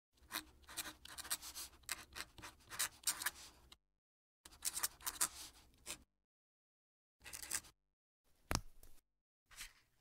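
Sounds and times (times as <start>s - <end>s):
pen nib scratching paper: 0.2s - 3.6s, 4.5s - 6.0s.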